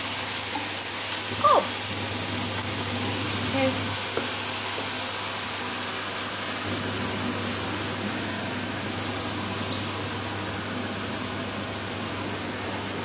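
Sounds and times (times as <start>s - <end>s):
extractor fan humming: 0.0s - 13.0s.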